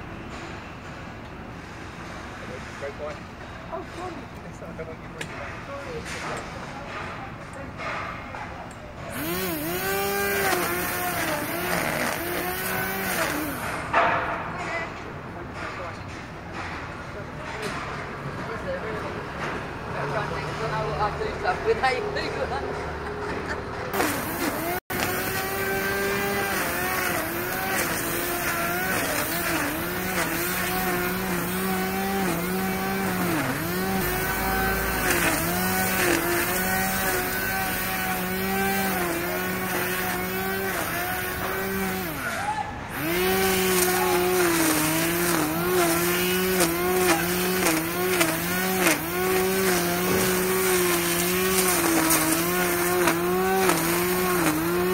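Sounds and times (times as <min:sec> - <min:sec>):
machine motor whining: 0:09.1 - 0:13.7, 0:24.0 - 0:54.9.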